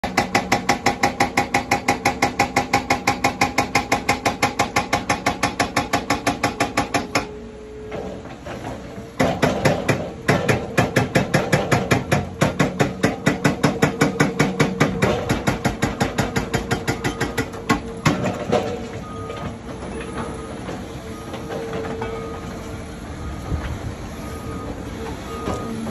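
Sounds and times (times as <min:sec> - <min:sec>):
hydraulic breaker hammering concrete: 0:00.0 - 0:07.3, 0:07.9 - 0:22.3
engine hum: 0:17.6 - 0:25.9.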